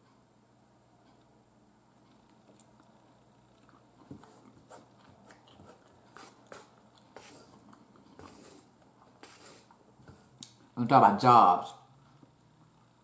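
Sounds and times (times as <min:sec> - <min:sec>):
chewing: 0:02.0 - 0:10.7.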